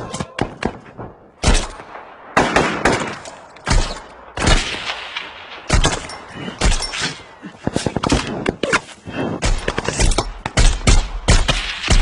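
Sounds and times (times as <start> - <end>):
rifle gunshots with echo: 0.4 - 6.9, 9.4 - 12.0.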